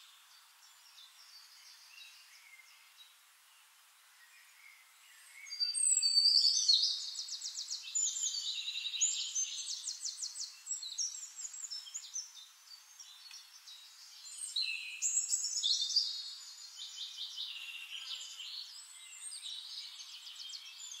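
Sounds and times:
songbirds chirping and trilling: 0:00.0 - 0:21.0.

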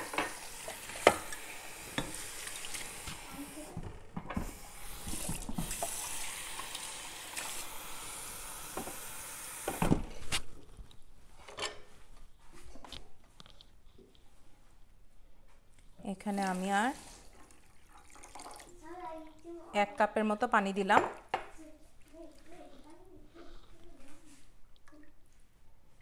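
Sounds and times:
tap running: 0:00.0 - 0:10.1.

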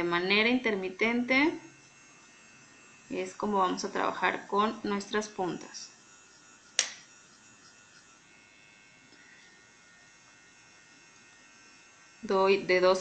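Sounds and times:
nail drill high whine: 0:00.0 - 0:13.0
sharp click: 0:06.8 - 0:07.0.

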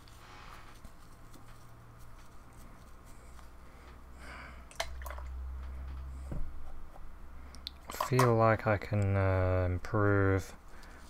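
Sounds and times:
soft rustle: 0:00.0 - 0:04.0
low steady hum: 0:00.0 - 0:11.0.

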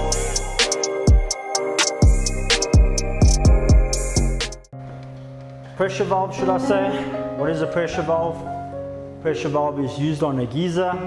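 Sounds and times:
hi-hat strokes: 0:00.0 - 0:04.7
steady drum beat: 0:00.0 - 0:04.7
held chords: 0:00.0 - 0:09.5.

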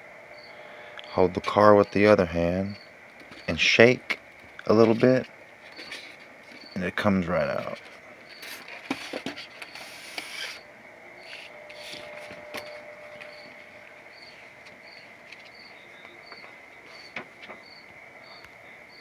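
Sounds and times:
crickets chirping: 0:00.0 - 0:19.0
styrofoam and paper handling: 0:07.2 - 0:10.6.

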